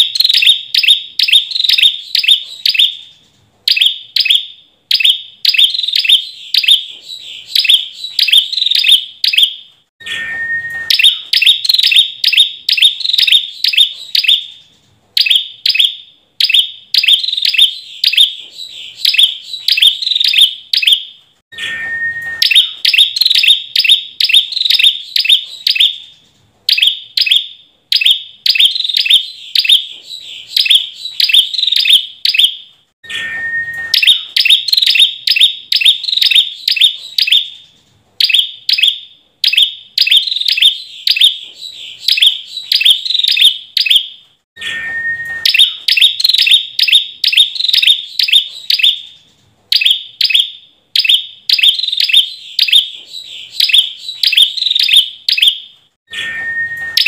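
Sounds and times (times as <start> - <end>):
bird singing sharp notes: 3.7 - 14.5, 15.2 - 26.0, 26.7 - 37.5, 44.6 - 49.0
low whistled bird note: 10.0 - 11.5, 21.5 - 23.0, 33.0 - 34.4, 44.6 - 45.9, 56.1 - 57.0.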